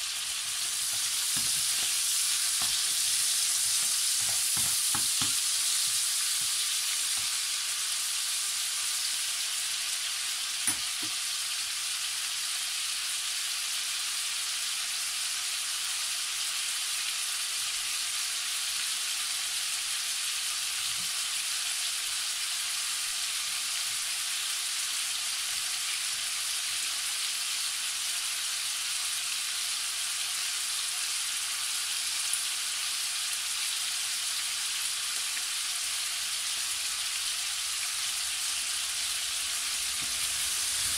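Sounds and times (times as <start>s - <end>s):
meat sizzling in frying pan: 0.0s - 40.9s.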